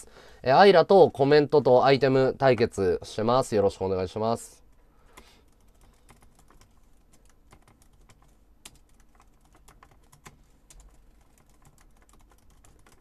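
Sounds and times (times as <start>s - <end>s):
typing on computer keyboard: 5.1s - 13.0s.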